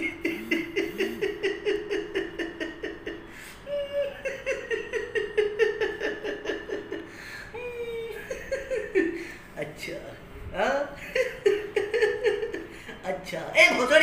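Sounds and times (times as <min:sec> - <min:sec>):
man laughing: 0:00.0 - 0:09.3.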